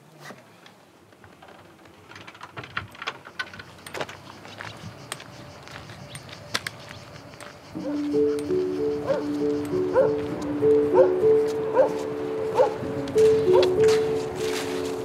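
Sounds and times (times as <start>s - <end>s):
footsteps on gravel: 3.6s - 15.0s.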